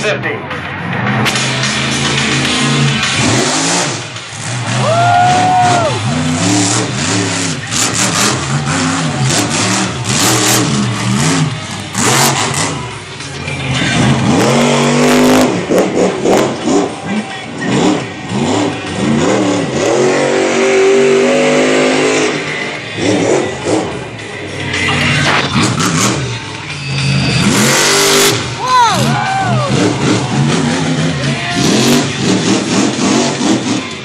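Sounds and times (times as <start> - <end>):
race engine revving: 0.0 - 34.0.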